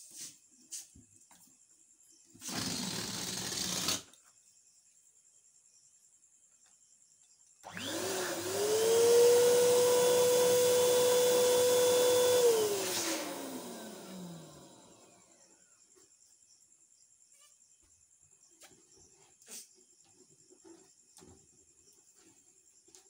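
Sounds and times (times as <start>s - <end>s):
electric balloon pump whining: 2.4s - 4.1s, 7.6s - 15.4s.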